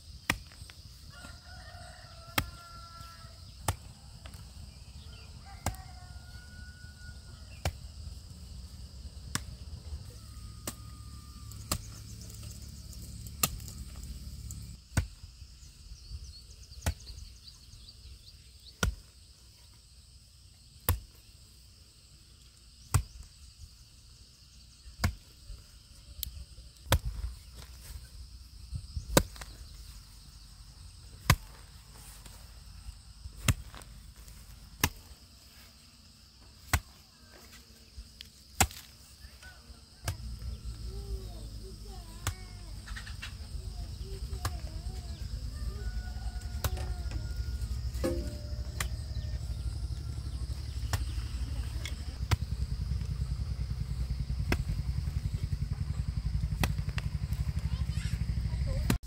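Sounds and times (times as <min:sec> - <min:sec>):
rooster crowing: 0:01.1 - 0:03.5, 0:05.0 - 0:07.6, 0:10.1 - 0:11.6, 0:45.3 - 0:50.2
chopping strikes: 0:47.9 - 0:49.3, 0:54.5 - 0:54.7, 0:56.6 - 0:57.0.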